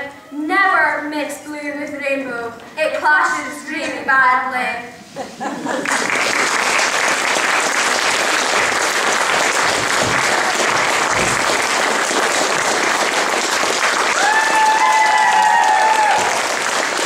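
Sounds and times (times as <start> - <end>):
audience applauding: 5.7 - 17.0.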